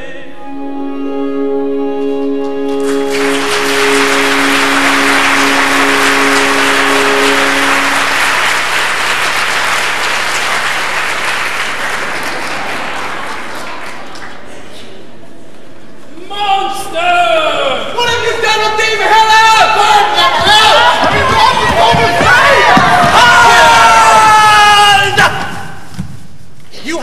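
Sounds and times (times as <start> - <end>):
held music chord: 0.0 - 10.5
audience applauding: 2.6 - 14.7, 20.2 - 24.6.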